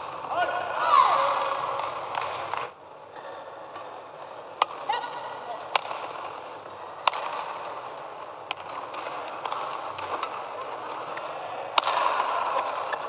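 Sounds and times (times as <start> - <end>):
hall and crowd hum: 0.0 - 13.0
rackets striking shuttlecock: 1.4 - 2.7, 4.6 - 13.0.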